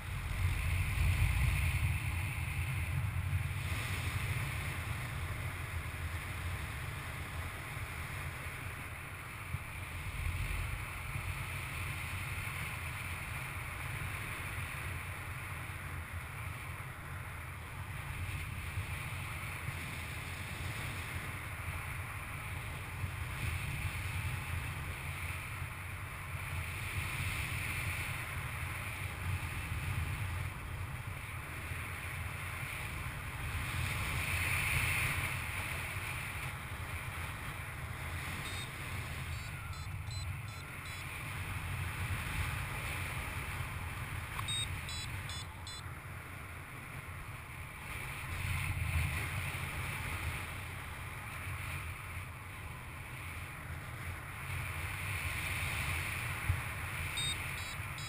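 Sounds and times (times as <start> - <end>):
rumbling wind noise on microphone: 0.0 - 45.8.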